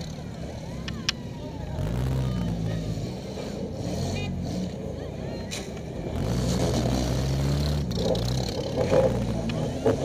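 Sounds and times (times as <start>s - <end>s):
car engine revving: 6.0s - 10.0s.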